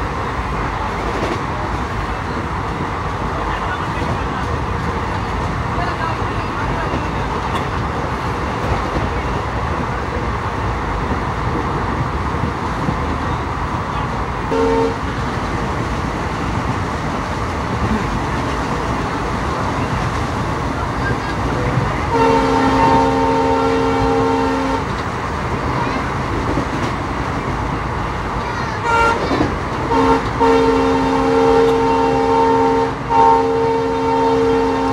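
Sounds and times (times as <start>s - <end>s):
train wheels rumbling on rails: 0.0s - 34.9s
train horn: 14.5s - 15.1s, 22.1s - 24.9s, 28.8s - 34.9s.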